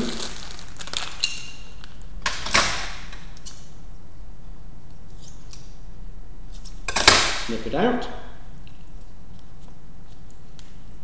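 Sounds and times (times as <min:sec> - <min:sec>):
plastic packet clicks and rustle: 0:00.0 - 0:02.0
low electrical hum: 0:00.0 - 0:11.0.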